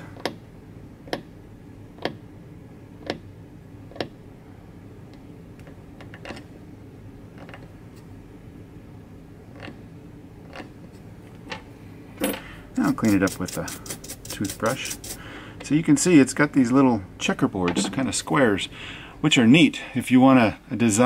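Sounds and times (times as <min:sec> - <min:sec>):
metal tool scratching wax: 0:10.4 - 0:10.7, 0:12.8 - 0:15.2.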